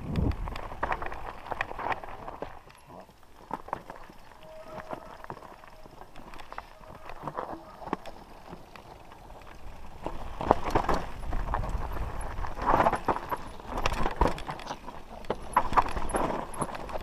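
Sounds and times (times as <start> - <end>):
wind rumble on microphone: 0.0 - 2.6, 9.3 - 14.3
mountain bike rattling and knocking: 0.0 - 17.0
tyres crunching over stones: 0.0 - 17.0.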